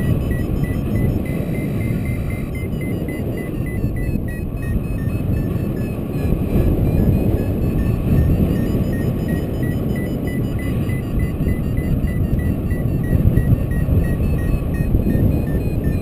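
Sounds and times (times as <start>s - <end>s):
variometer beeping: 0.0s - 16.0s
wind buffeting microphone: 0.0s - 16.0s.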